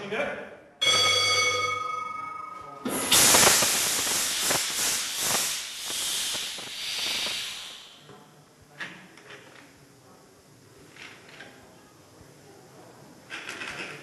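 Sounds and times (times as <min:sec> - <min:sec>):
air whistling: 0:02.8 - 0:08.1
diesel engine hissing in pulses: 0:03.0 - 0:08.1.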